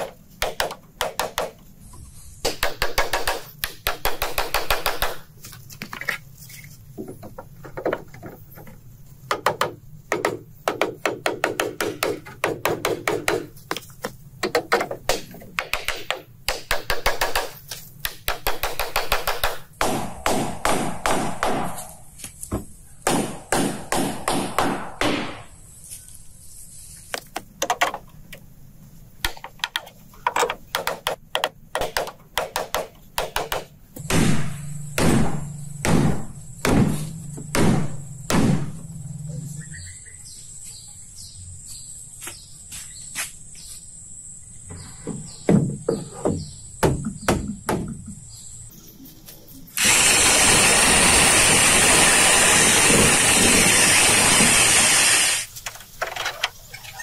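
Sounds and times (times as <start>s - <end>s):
hammer and chopping blows on wood: 9.3s - 25.5s, 30.8s - 38.7s
heavy ringing strikes: 34.0s - 39.3s.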